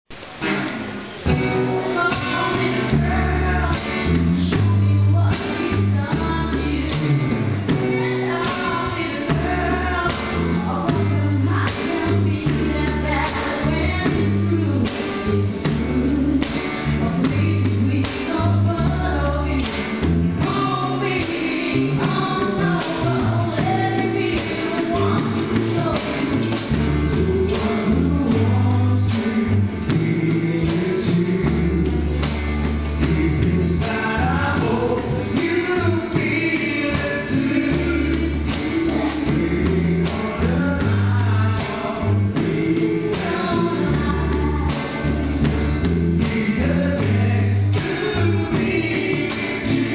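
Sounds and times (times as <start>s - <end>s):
acoustic guitars strumming: 0.1s - 49.9s
percussion beat: 0.2s - 49.9s
men singing together: 1.3s - 49.9s
deep bass line: 9.0s - 21.1s, 24.9s - 49.9s.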